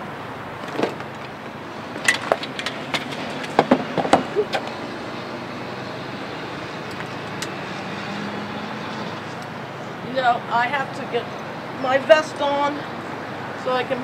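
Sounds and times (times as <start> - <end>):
street traffic: 0.0 - 14.0
sharp clicks and knocks: 2.0 - 4.8.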